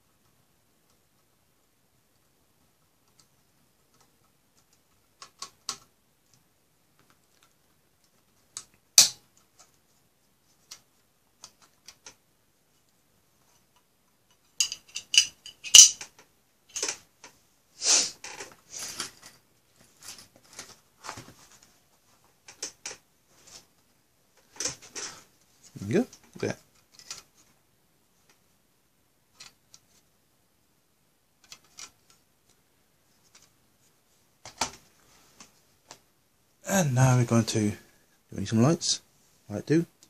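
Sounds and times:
small tools set down: 14.6s - 17.0s.

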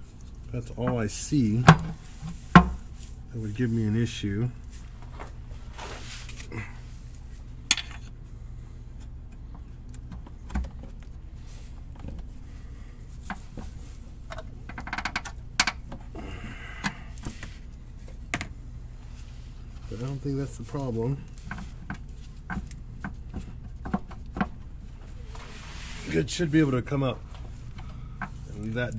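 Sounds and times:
low steady hum: 0.0s - 28.9s.

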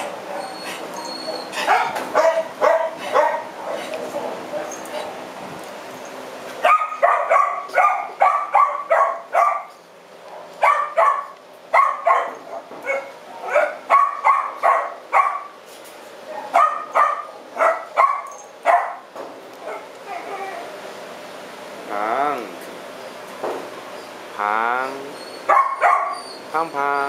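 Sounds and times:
dog barking: 1.3s - 3.9s, 6.6s - 15.6s, 16.3s - 20.3s, 25.5s - 26.2s.

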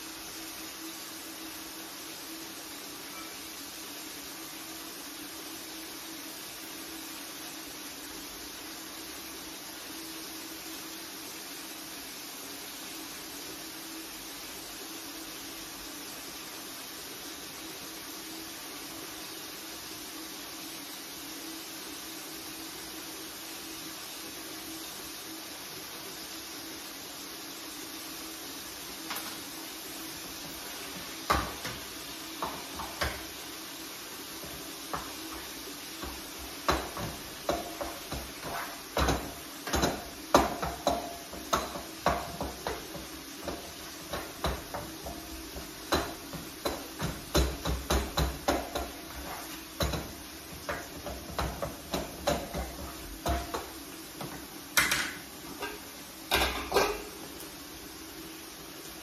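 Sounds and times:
spatula scraping frying pan: 34.2s - 53.9s
metal pot clattering: 34.4s - 53.8s, 54.8s - 57.2s.

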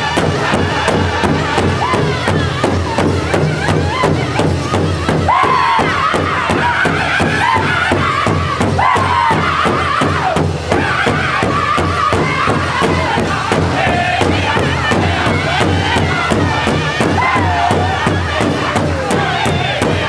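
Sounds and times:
large drum beating steadily: 0.0s - 20.0s
men singing high-pitched chorus: 0.0s - 20.0s
women singing: 0.0s - 20.0s.

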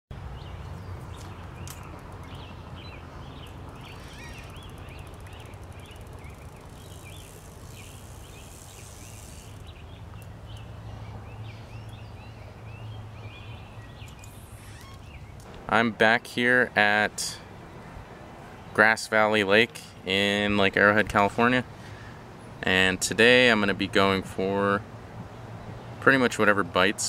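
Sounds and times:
small birds chirping: 0.2s - 15.5s.

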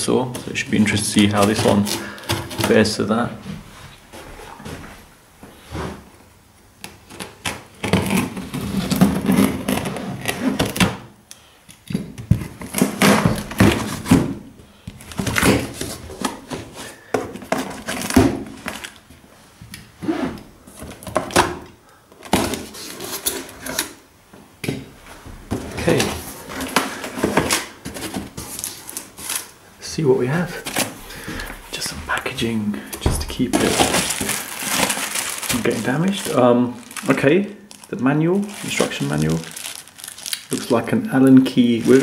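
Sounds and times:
cardboard packaging rustling: 0.2s - 4.9s, 12.2s - 19.2s, 22.2s - 24.0s, 25.4s - 29.6s, 30.2s - 42.0s
shrink-wrap tearing: 1.2s - 2.9s, 25.8s - 29.5s, 33.4s - 42.0s.

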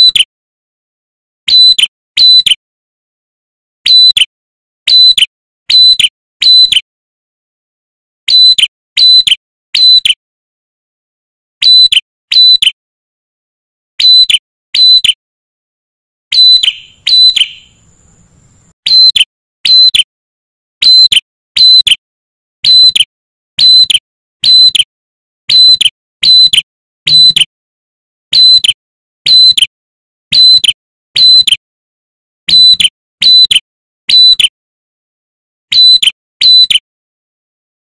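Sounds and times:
bird calling piercing notes: 0.0s - 0.3s, 1.5s - 2.6s, 3.8s - 4.3s, 4.9s - 6.8s, 8.3s - 10.2s, 11.6s - 12.8s, 14.0s - 15.2s, 16.3s - 20.1s, 20.8s - 22.0s, 22.6s - 24.8s, 25.5s - 27.5s, 28.3s - 29.7s, 30.3s - 31.6s, 32.5s - 34.5s, 35.7s - 36.8s.

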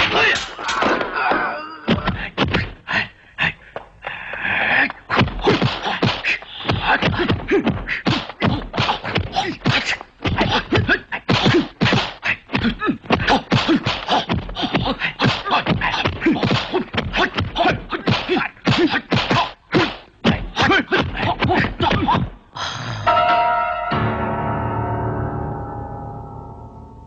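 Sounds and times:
fighters shouting and grunting: 0.0s - 3.7s, 4.4s - 22.4s
punch and block whacks: 5.1s - 14.4s, 15.2s - 22.3s.

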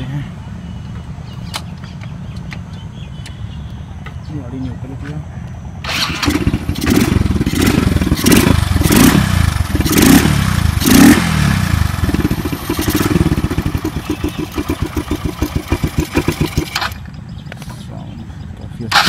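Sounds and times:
motorcycle engine revving and idling: 5.8s - 19.0s.

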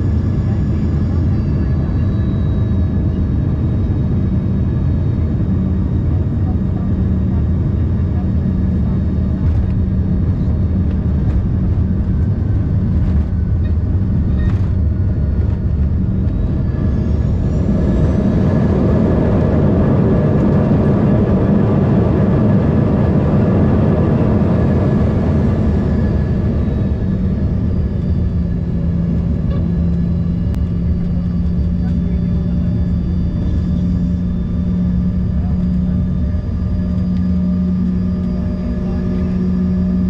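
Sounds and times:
jet engine drone: 0.0s - 40.0s
engines spooling up with whine: 8.5s - 40.0s.

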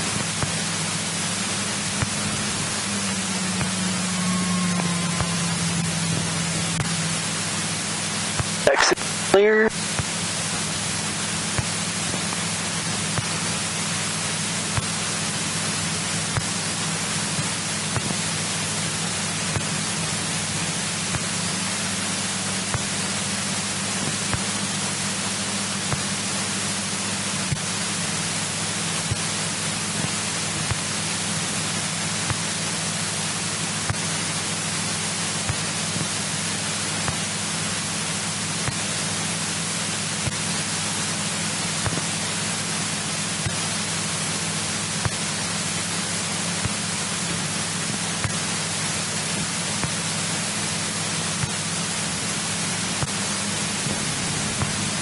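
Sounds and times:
aircraft engine drone: 0.0s - 55.0s
headset intercom hiss: 8.5s - 10.0s.

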